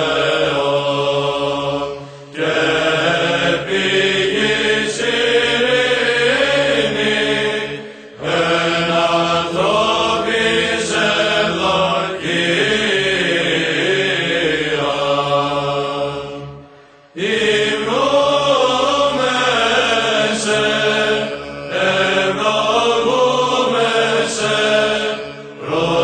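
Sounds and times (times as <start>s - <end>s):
chanting voice with ornamented melody: 0.0s - 26.0s
held vocal drone: 0.0s - 26.0s.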